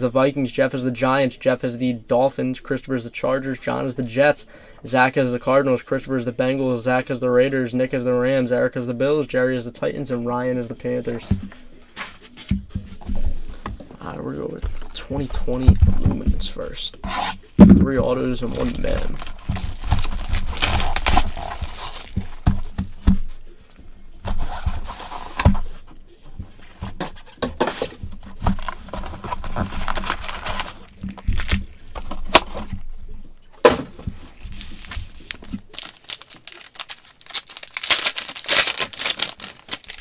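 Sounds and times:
box being handled: 0:11.1 - 0:32.9, 0:33.6 - 0:40.0
plastic wrapping crinkling: 0:18.2 - 0:23.6, 0:28.0 - 0:32.8, 0:34.2 - 0:40.0
pack wrapper tearing: 0:18.5 - 0:22.4, 0:28.6 - 0:32.5, 0:34.6 - 0:40.0.

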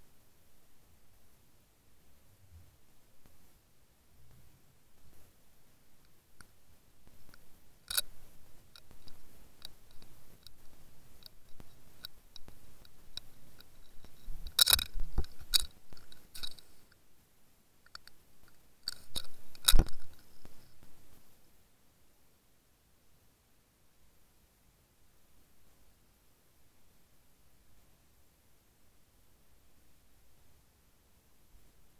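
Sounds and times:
small clicks and taps: 0:06.0 - 0:17.0, 0:17.8 - 0:21.0.

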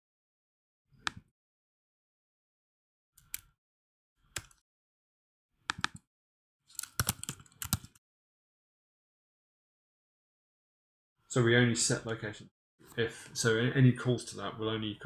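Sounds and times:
typing on computer keyboard: 0:06.7 - 0:08.0.

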